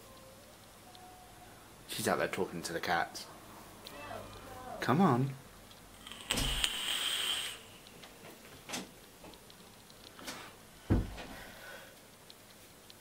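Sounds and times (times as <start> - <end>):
short hiss: 6.2 - 7.8
heavy knock: 10.9 - 11.2.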